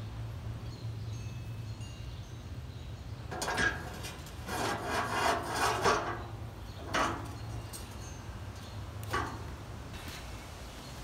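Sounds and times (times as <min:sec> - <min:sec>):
steel parts scraping: 0:03.3 - 0:10.3.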